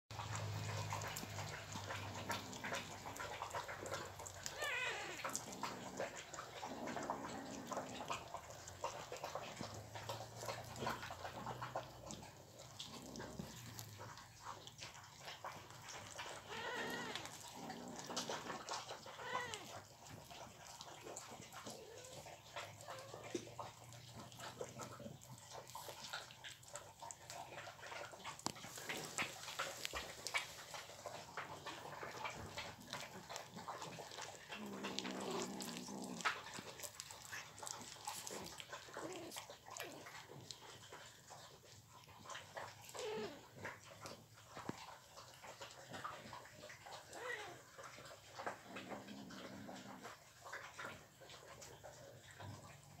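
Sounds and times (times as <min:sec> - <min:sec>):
kittens chewing meat: 0:00.1 - 0:53.0
cat cries: 0:04.4 - 0:05.4, 0:16.5 - 0:17.3, 0:19.1 - 0:19.8.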